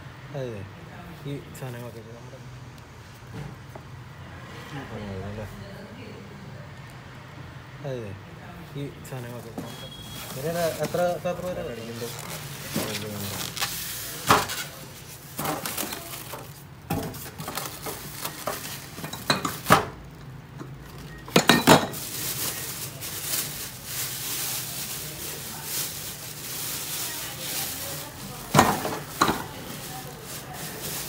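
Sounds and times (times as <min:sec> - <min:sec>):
plastic wrapping rustling: 0:09.0 - 0:31.0
polystyrene foam scraping: 0:09.3 - 0:19.0, 0:21.8 - 0:31.0.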